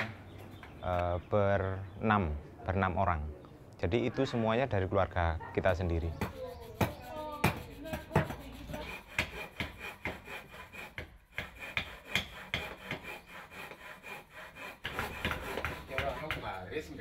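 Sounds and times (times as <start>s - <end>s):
carving knives shaving wood: 6.0s - 16.6s.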